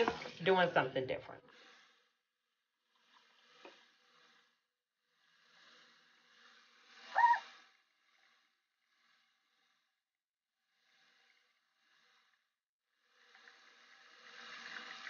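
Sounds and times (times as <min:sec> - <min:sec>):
short high-pitched squeak: 0:07.1 - 0:07.6.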